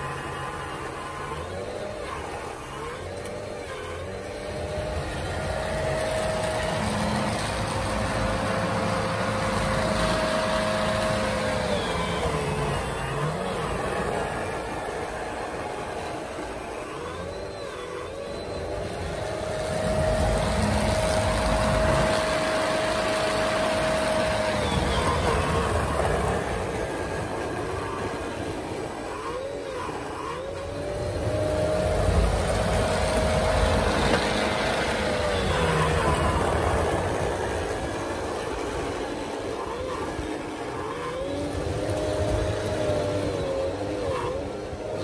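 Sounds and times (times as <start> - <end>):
electric motors whining: 0.0 - 45.0.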